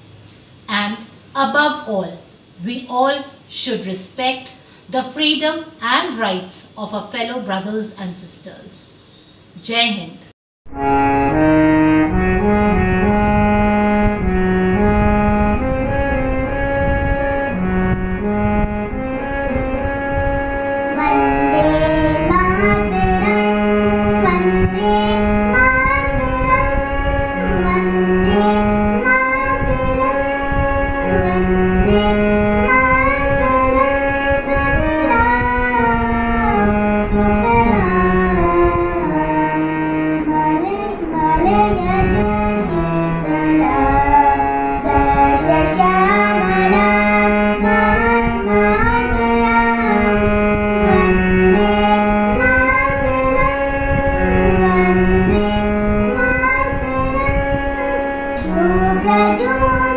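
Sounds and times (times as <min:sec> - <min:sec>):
harmonium playing slow melody: 0:10.7 - 0:59.9
child singing: 0:20.9 - 0:39.6, 0:40.2 - 0:59.9.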